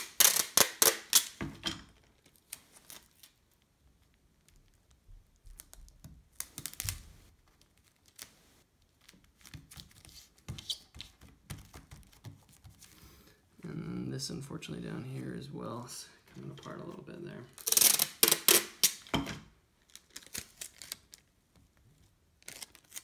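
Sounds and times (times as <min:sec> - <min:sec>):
tape crackling: 0:00.0 - 0:01.4, 0:02.0 - 0:13.0, 0:16.3 - 0:23.0
packing tape crinkling and tapping: 0:00.0 - 0:13.0, 0:17.5 - 0:19.2, 0:19.8 - 0:23.0.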